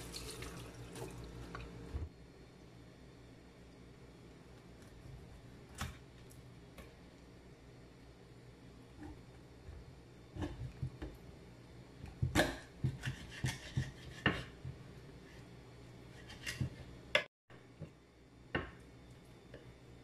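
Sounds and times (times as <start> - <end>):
knife scraping and cutting fish: 12.4 - 14.7, 16.1 - 16.9.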